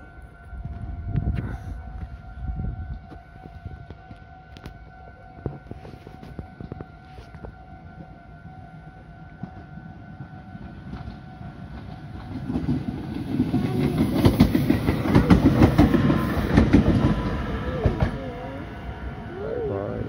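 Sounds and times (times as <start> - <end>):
level-crossing warning bell: 0.0 - 20.0
train wheels clattering: 10.8 - 18.5.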